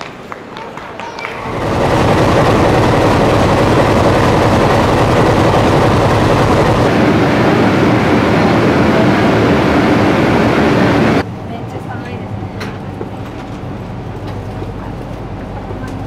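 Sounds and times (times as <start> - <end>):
locomotive diesel engines rumbling: 1.4 - 11.2.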